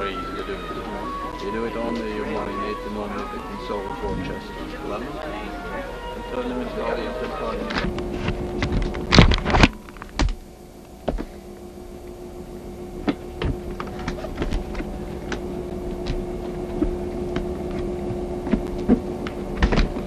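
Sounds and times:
steady hum: 0.0s - 20.0s.

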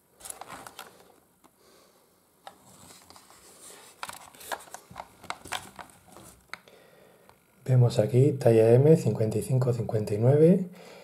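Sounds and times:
helmet shell and straps rubbing: 2.4s - 6.6s.

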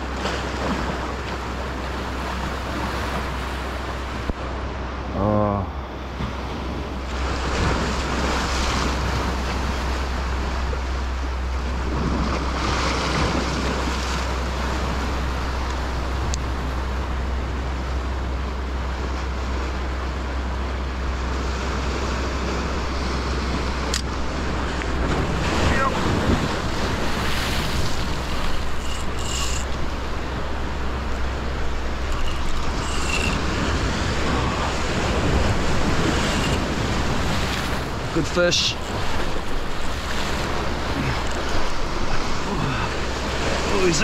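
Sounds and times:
waves washing over rocks: 0.0s - 44.0s
wind on microphone: 21.2s - 38.2s.

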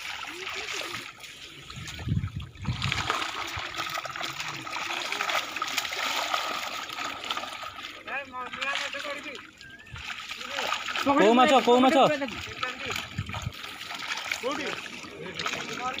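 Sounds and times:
water splashing from wading: 0.0s - 16.0s.

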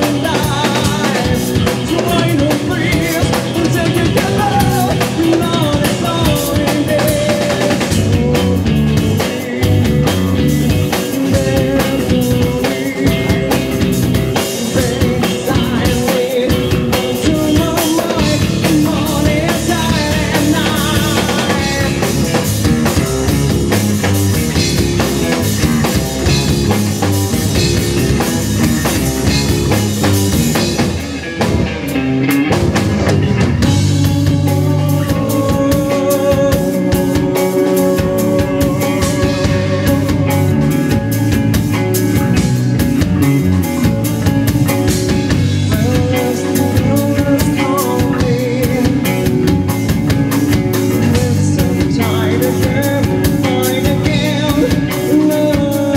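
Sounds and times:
lead singer singing: 0.0s - 31.4s, 33.3s - 55.9s
drum kit: 0.0s - 55.9s
electric guitars: 0.0s - 55.9s.

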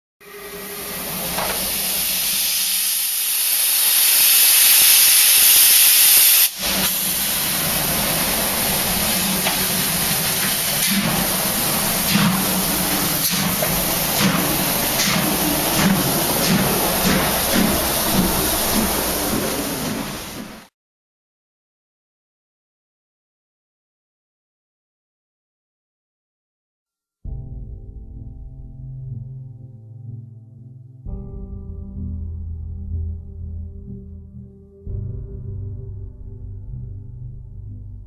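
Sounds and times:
locomotive steam hiss: 0.2s - 20.7s
low pulsing: 6.6s - 20.6s, 31.1s - 38.0s.

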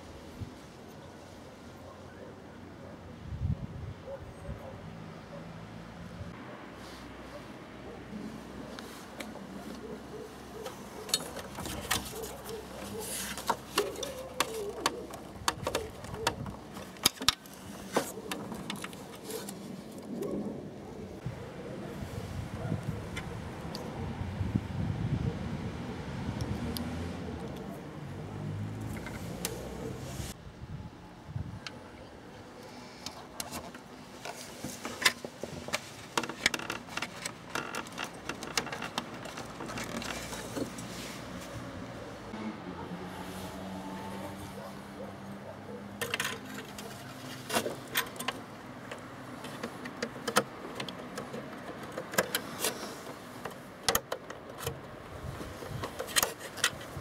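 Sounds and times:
hands clicking wiring: 10.6s - 19.6s, 33.0s - 40.9s, 46.0s - 57.0s.

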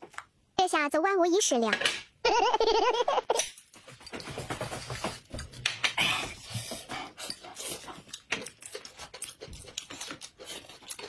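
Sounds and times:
chewing: 6.4s - 11.0s.

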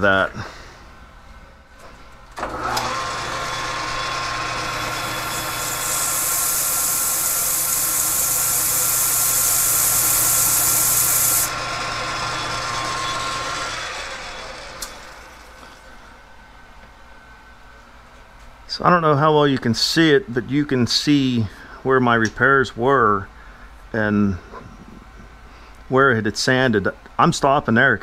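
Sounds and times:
lathe motor whining: 2.3s - 16.1s
lathe spinning down: 2.4s - 15.9s
sandpaper hissing on metal: 5.8s - 11.5s.

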